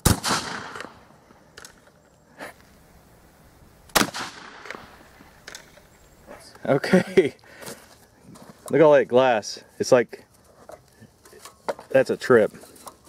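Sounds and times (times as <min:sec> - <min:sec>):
shotgun blasts: 0:00.0 - 0:01.1, 0:03.9 - 0:05.1.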